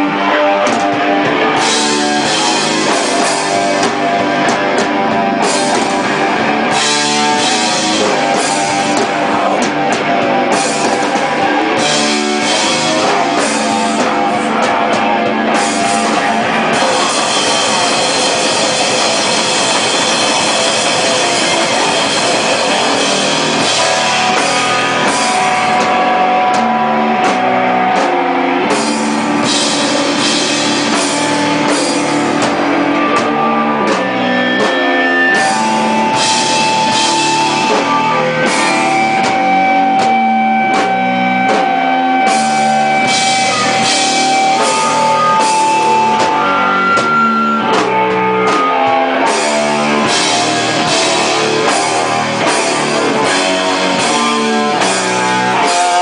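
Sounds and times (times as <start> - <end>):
drum kit with cymbal hits: 0.0 - 56.0
electric guitar held notes: 0.0 - 56.0.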